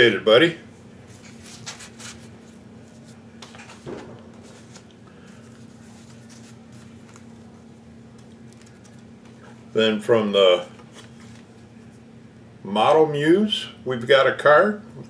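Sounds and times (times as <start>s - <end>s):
steady low hum: 0.0s - 15.0s
paper cards rustling: 1.1s - 9.6s, 10.5s - 11.9s
short bump: 3.8s - 4.8s.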